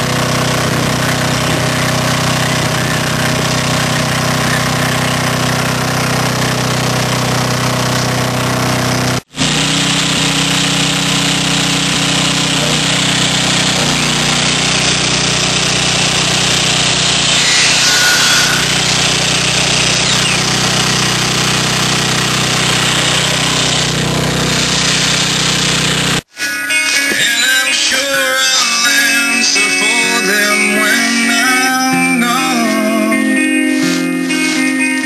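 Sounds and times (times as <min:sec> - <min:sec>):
miter saw cutting wood: 0:00.0 - 0:26.3, 0:28.9 - 0:35.0
small engine running: 0:00.0 - 0:26.3.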